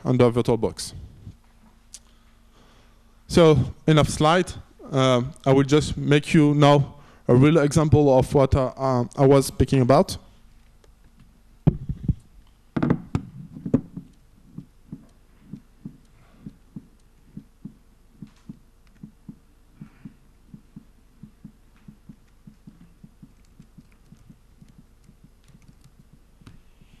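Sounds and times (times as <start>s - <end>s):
microphone handling knocks: 12.8s - 14.1s
laptop keyboard typing: 14.0s - 27.0s.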